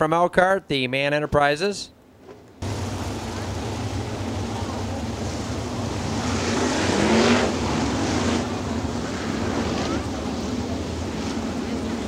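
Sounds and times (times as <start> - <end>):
race car engines passing: 2.6 - 12.0.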